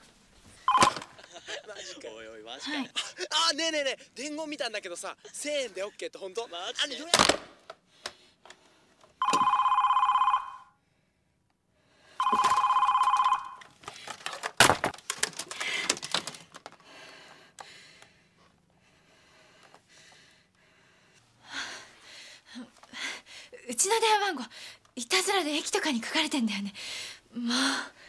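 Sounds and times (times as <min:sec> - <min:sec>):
telephone warbling ring: 0:00.7 - 0:01.0, 0:09.2 - 0:10.7, 0:12.2 - 0:13.6.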